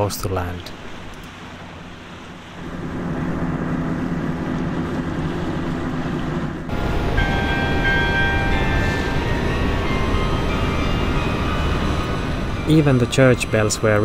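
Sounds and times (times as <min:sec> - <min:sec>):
boat engine running: 0:00.5 - 0:14.0
church bells ringing: 0:06.7 - 0:14.0.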